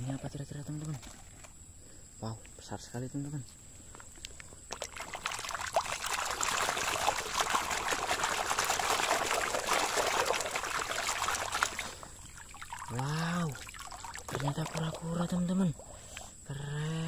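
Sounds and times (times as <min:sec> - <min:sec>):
water splashing and sloshing: 0:00.0 - 0:01.6, 0:04.6 - 0:16.3.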